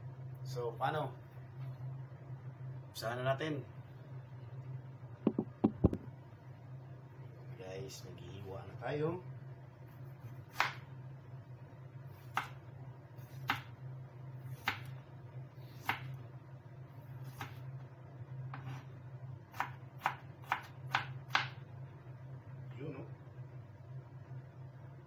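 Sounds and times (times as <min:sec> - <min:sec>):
steady low hum: 0:00.0 - 0:25.0
knife slicing a tomato: 0:15.7 - 0:16.2, 0:17.2 - 0:17.6, 0:18.5 - 0:18.9.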